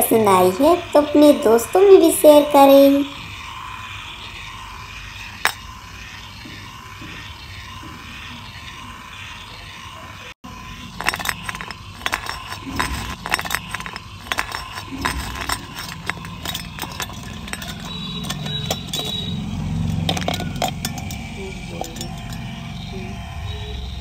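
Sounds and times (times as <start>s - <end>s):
small toy motor running: 10.6s - 23.2s
toy pieces rattling in drum: 11.0s - 22.5s.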